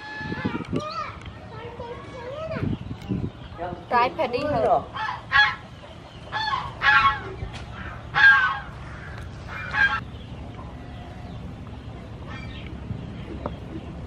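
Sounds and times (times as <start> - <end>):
fowl calling: 4.8 - 10.1.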